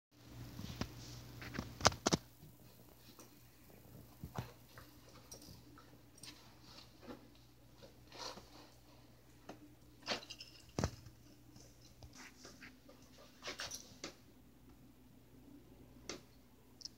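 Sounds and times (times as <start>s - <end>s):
sharp clicks and crunches: 1.4s - 2.3s.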